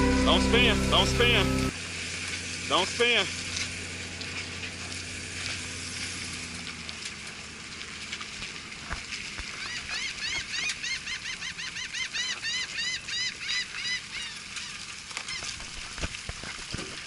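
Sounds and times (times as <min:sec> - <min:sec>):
low hum: 0:00.0 - 0:08.6
bird calling rapid notes: 0:09.6 - 0:15.5.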